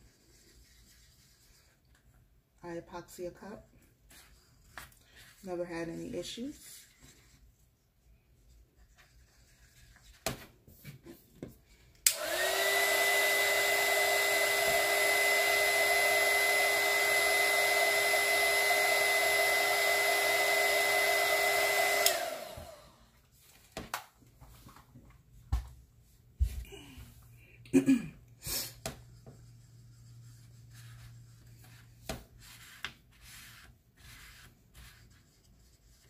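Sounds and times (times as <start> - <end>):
heat gun blowing with whine: 12.0 - 23.0.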